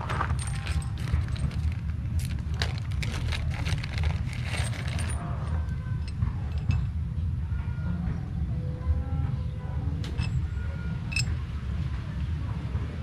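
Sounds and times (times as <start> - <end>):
plastic packet rustling: 0.0 - 5.2
small metal parts clinking: 0.0 - 6.9, 10.2 - 10.5, 11.1 - 11.4
low rumble: 0.0 - 8.3.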